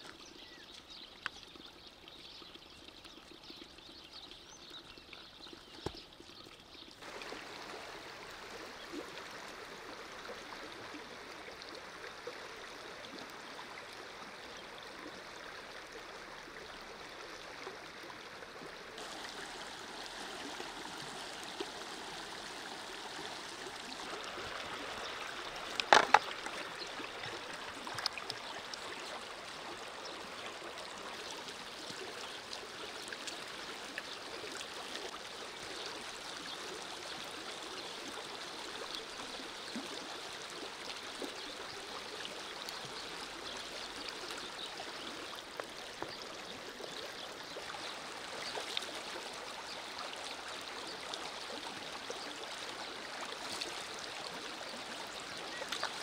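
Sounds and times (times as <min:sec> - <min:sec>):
river babbling over stones: 0:04.4 - 0:56.0.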